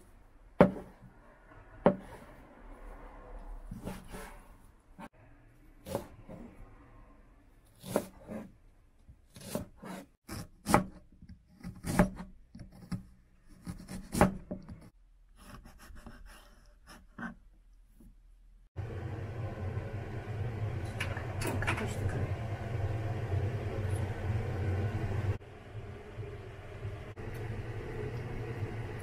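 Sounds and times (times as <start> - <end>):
knife cutting and scraping: 3.7 - 4.7, 9.3 - 10.9.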